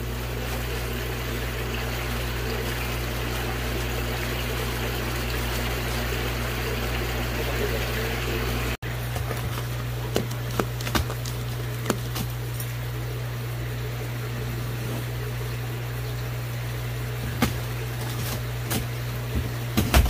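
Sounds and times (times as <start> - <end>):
low pump hum: 0.0 - 20.0
water running into plastic bag: 8.8 - 13.2, 14.5 - 20.0.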